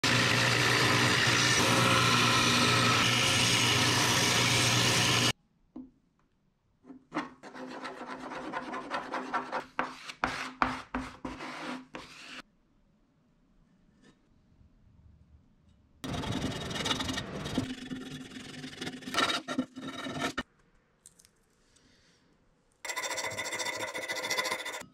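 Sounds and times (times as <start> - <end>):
belt sander grinding metal: 0.0 - 5.3, 16.0 - 19.2.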